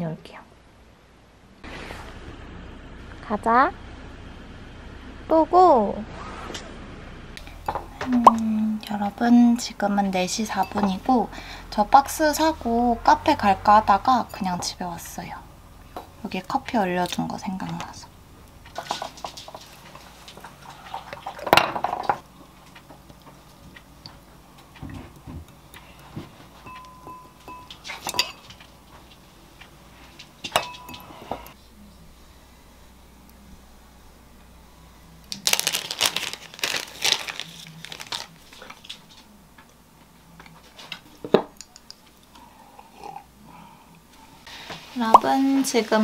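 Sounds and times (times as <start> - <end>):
plastic packaging crinkling: 35.3 - 39.1.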